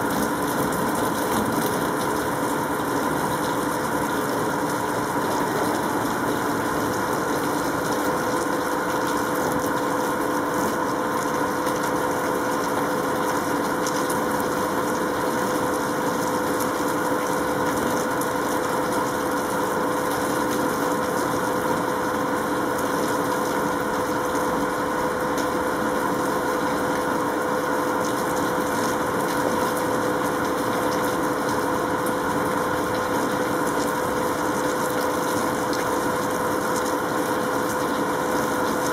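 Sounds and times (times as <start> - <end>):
steady mechanical hum: 0.0 - 38.9.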